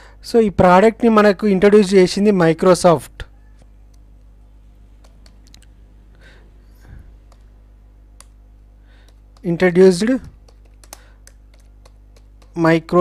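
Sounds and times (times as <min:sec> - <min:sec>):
faint low hum: 0:00.0 - 0:13.0
keyboard keystrokes clicking: 0:09.0 - 0:13.0.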